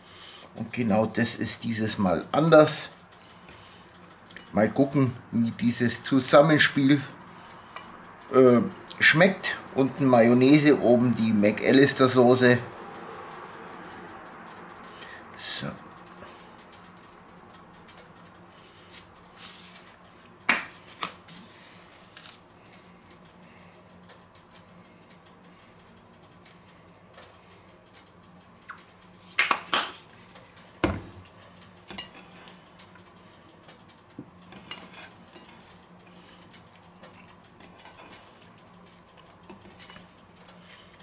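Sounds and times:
low steady hum: 0.0 - 41.0.

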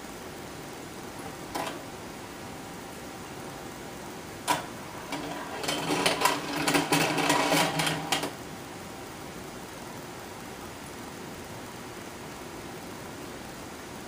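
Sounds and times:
mechanical clicking and whirring: 4.4 - 8.4.

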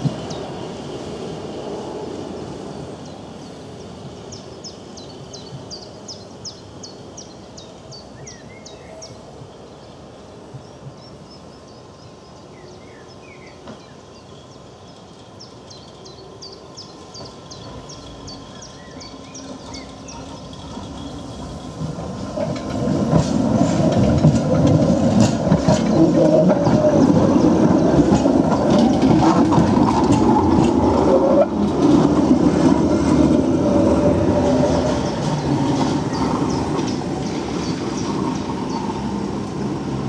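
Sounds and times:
tram rumbling on tracks: 0.0 - 40.0
songbird singing: 0.1 - 1.0, 2.2 - 40.0.

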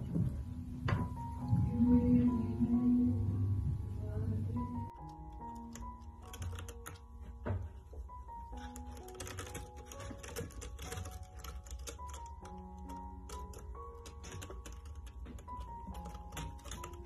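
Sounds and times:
background music with held notes: 0.0 - 17.0.

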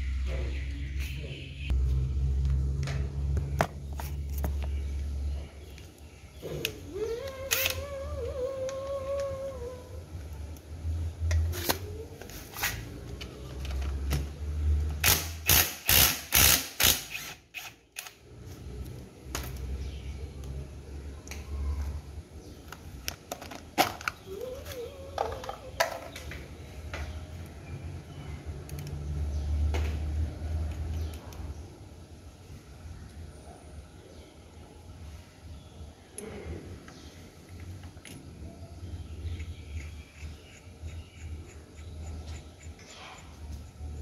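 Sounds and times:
impact driver bursts: 15.0 - 17.8.

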